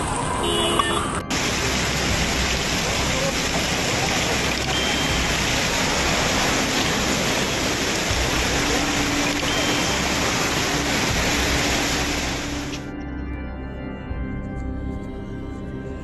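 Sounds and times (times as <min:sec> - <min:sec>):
rushing water: 0:00.0 - 0:12.9.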